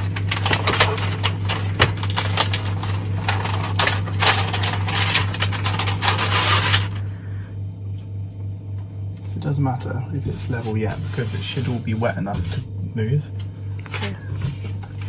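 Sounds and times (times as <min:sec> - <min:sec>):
plastic film crinkling: 0:00.0 - 0:07.1.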